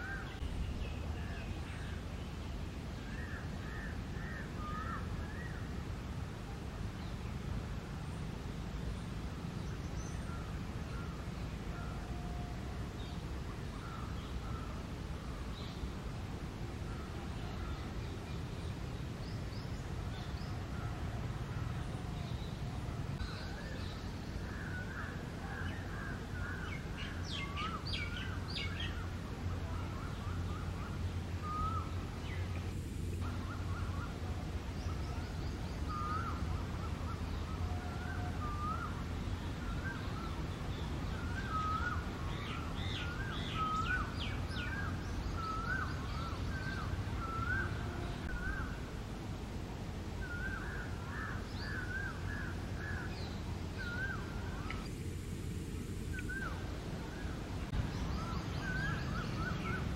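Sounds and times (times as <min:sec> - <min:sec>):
steady low rumble: 0:41.9 - 0:59.9
birds chirping and calling: 0:56.1 - 0:59.9.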